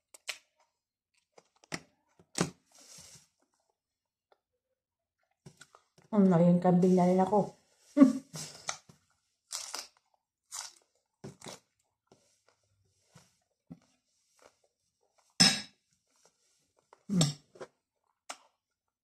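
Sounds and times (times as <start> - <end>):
chewing leafy greens: 9.5 - 11.8.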